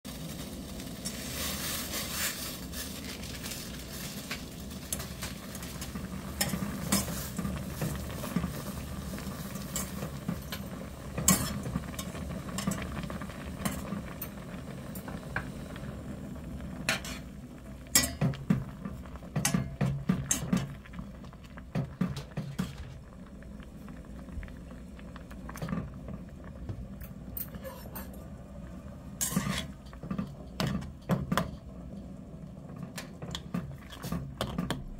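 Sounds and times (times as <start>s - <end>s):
water boiling in a pot: 0.0s - 34.9s
utensils clinking against pot: 18.0s - 18.4s, 19.4s - 20.7s, 27.4s - 28.2s, 29.2s - 29.8s.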